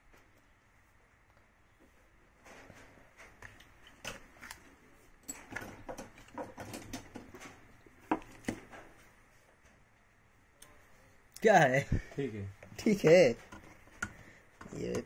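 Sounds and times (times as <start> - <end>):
tools clicking and rustling: 2.4 - 9.0.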